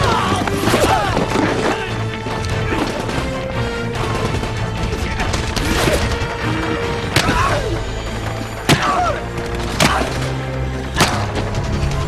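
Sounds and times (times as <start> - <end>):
dramatic orchestral score: 0.0 - 12.0
din of combat: 8.6 - 12.0.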